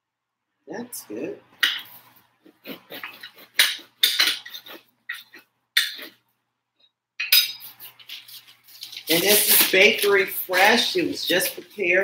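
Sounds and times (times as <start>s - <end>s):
utensils and dishes clinking: 2.6s - 6.2s, 7.2s - 11.7s.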